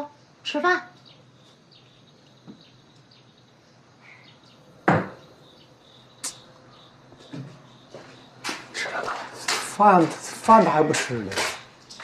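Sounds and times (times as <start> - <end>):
faint high chirping: 0.0 - 9.4.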